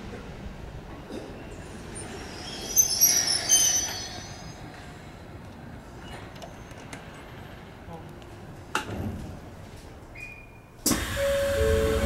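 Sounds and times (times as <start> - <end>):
train wheels squealing: 1.9 - 4.7
electric train running: 10.9 - 12.0.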